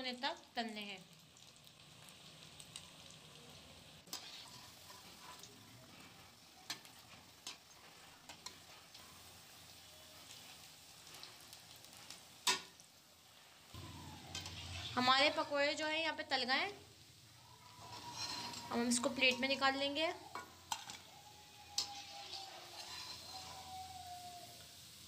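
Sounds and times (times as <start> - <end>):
food deep-frying in oil: 0.0 - 25.0
metal spoon clicking on pan: 12.4 - 12.7, 20.3 - 21.0.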